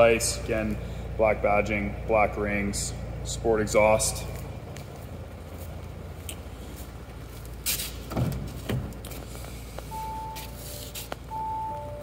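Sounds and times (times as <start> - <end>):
car electronic chime: 9.7 - 12.0.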